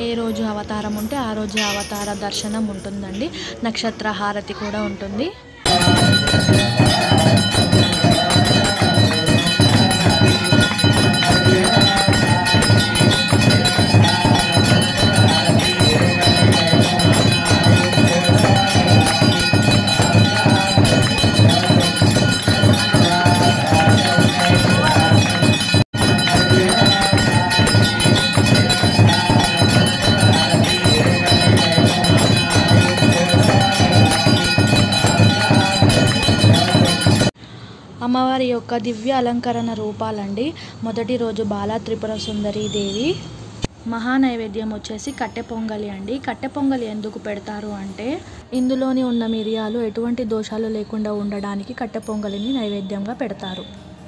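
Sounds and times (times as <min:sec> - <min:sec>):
bells clanging rapidly: 0:00.0 - 0:03.6, 0:05.7 - 0:37.4
dense percussion: 0:05.7 - 0:37.4.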